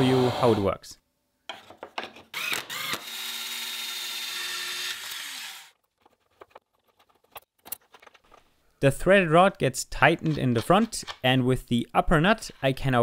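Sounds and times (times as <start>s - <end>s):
drill driving screw into wood: 2.3s - 5.8s.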